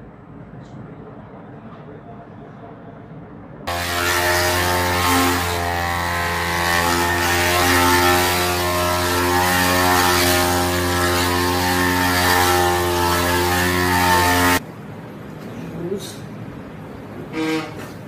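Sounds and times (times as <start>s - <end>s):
electric massager buzzing: 3.7s - 14.6s.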